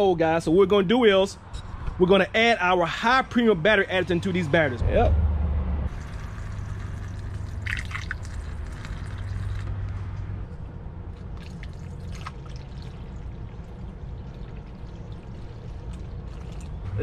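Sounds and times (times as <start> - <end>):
liquid trickling through funnel: 5.9 - 9.8, 11.1 - 17.0.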